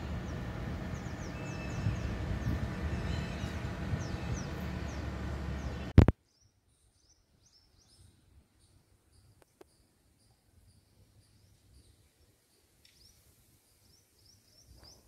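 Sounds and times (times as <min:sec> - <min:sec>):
steady low rumble: 0:00.0 - 0:06.1
small birds chirping: 0:00.0 - 0:15.0.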